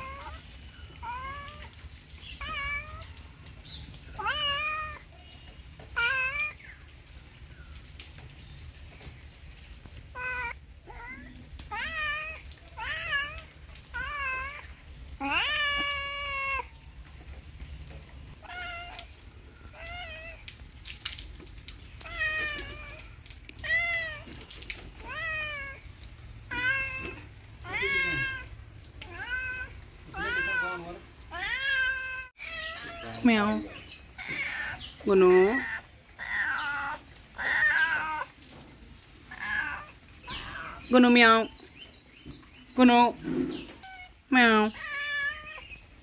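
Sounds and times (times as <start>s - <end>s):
cat meowing: 0.0s - 3.4s, 4.1s - 5.2s, 5.8s - 6.6s, 10.1s - 16.9s, 18.4s - 20.7s, 22.0s - 38.5s, 39.3s - 40.9s, 43.7s - 45.8s.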